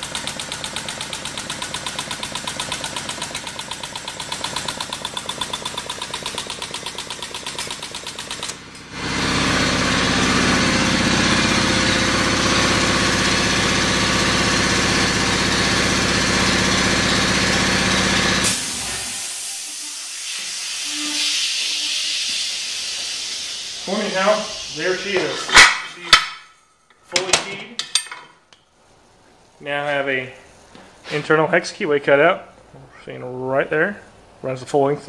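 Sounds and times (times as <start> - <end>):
hydraulic pump pulsing: 0.0 - 25.5
hydraulic pump hum: 3.1 - 26.4.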